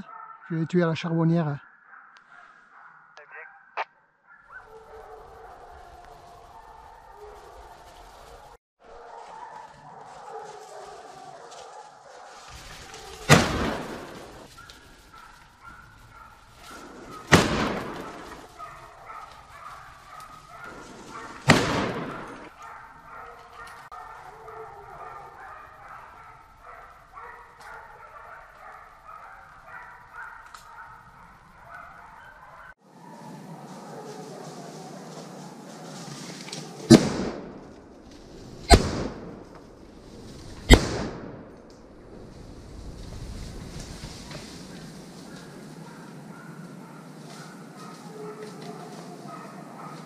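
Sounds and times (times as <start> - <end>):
hounds baying faintly: 0.0 - 38.4, 42.2 - 50.0
rifle shots with echo: 13.3 - 14.4, 17.3 - 18.4, 21.3 - 22.5, 36.9 - 37.7, 38.7 - 39.5, 40.6 - 41.6.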